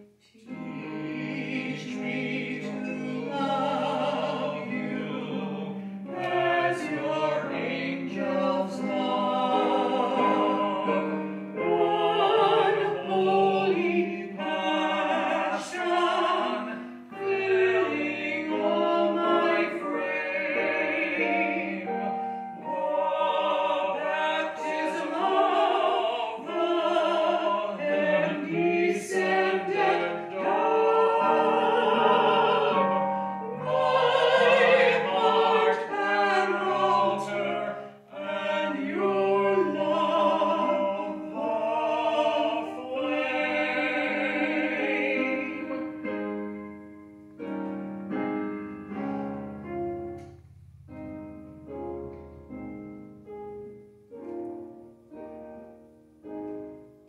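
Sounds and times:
piano accompaniment: 0.0 - 57.0
woman and man singing a hymn: 0.4 - 46.0.

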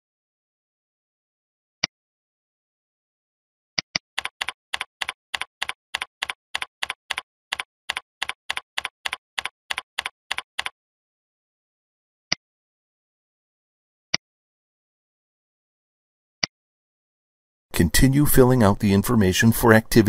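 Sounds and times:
typing on computer keyboard: 4.2 - 10.7.

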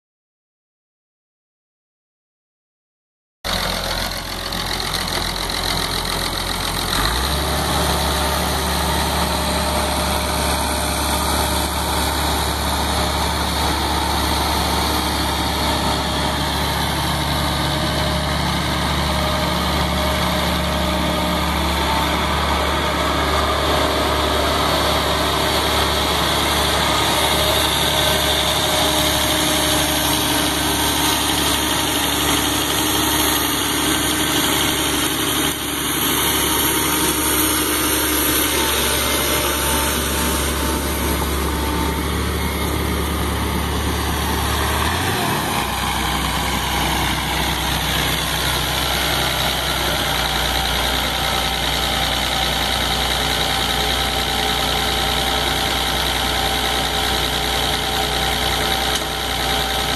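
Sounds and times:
tractor diesel engine idling: 3.5 - 59.9.

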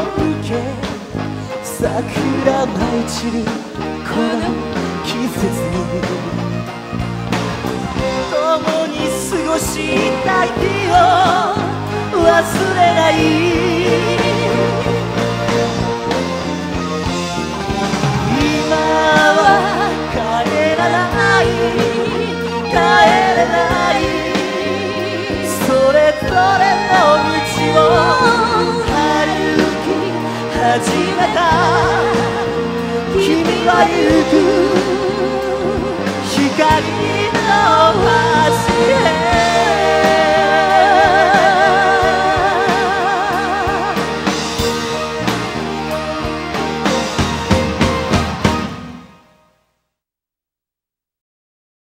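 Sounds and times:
rock band playing: 0.0 - 49.4.

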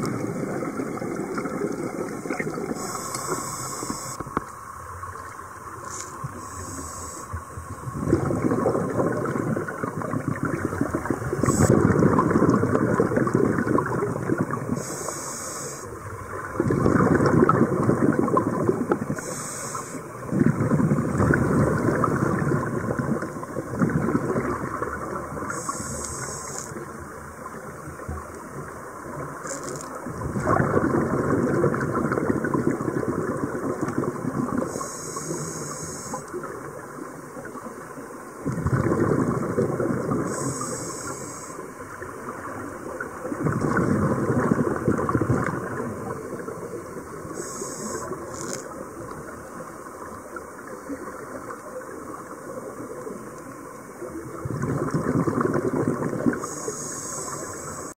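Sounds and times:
exhaled bubbles underwater: 0.0 - 57.9
regulator hissing inhalations: 2.7 - 4.2, 5.8 - 7.4, 14.8 - 16.0, 19.2 - 20.1, 25.5 - 26.8, 34.7 - 36.4, 40.3 - 41.7, 47.3 - 48.6, 56.4 - 57.9.

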